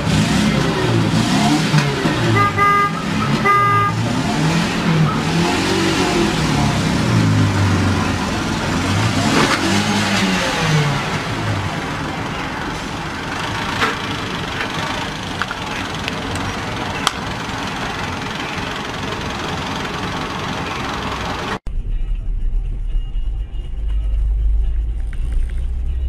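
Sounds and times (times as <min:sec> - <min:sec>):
car engine revving: 0:00.0 - 0:26.0
car horn beeps: 0:02.2 - 0:04.2.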